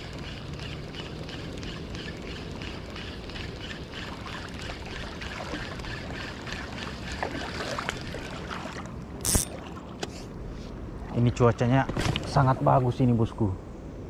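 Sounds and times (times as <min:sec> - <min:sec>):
fishing reel whirring: 0:00.0 - 0:08.1, 0:09.2 - 0:09.5.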